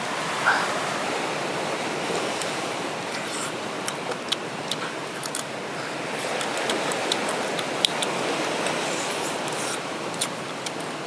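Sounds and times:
ocean surf: 0:00.0 - 0:11.0
crab shell cracking: 0:03.2 - 0:05.5, 0:06.1 - 0:10.8.

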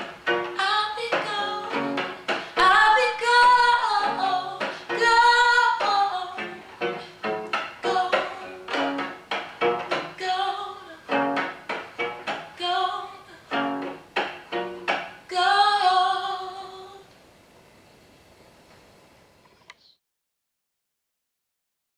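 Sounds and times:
plucked cello notes: 0:00.0 - 0:10.4, 0:13.5 - 0:15.0
woman singing: 0:00.6 - 0:06.6, 0:07.8 - 0:09.0, 0:09.9 - 0:11.4, 0:12.6 - 0:13.8, 0:15.3 - 0:17.1.

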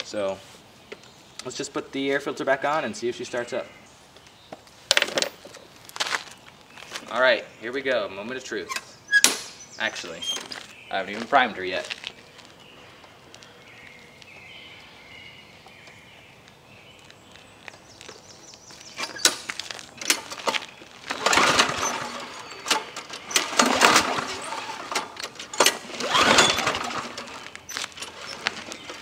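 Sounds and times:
mower pull cord cranking: 0:19.0 - 0:29.0.

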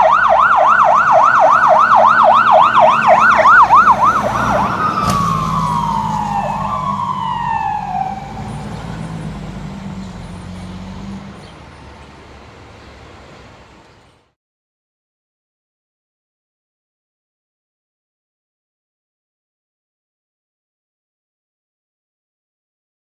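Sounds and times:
fire engine siren: 0:00.0 - 0:12.7
low engine rumble: 0:00.1 - 0:14.3.

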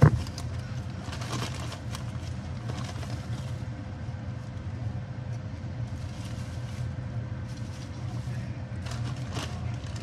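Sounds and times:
plastic bag crinkling: 0:00.0 - 0:03.6, 0:08.8 - 0:10.0
low mechanical hum: 0:00.0 - 0:10.0.

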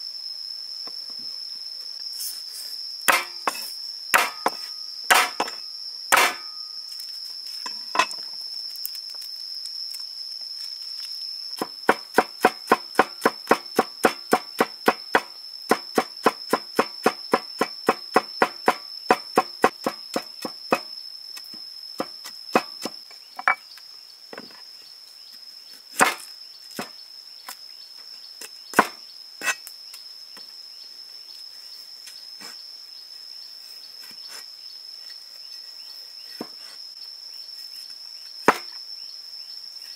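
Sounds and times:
high-pitched insect drone: 0:00.0 - 0:39.9
cleaver chopping on wooden board: 0:03.1 - 0:03.6, 0:04.2 - 0:06.5, 0:11.6 - 0:20.9, 0:22.0 - 0:23.5, 0:26.0 - 0:26.2, 0:28.8 - 0:29.6.

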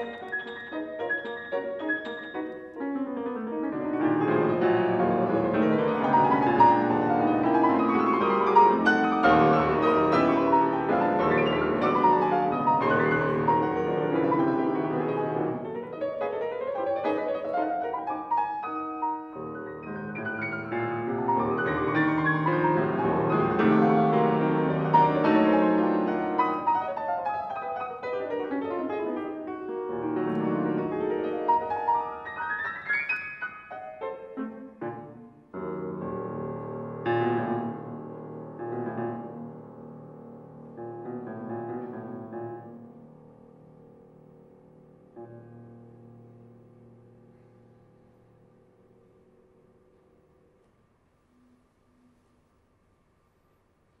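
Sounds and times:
solo piano fast runs: 0:00.0 - 0:50.6.

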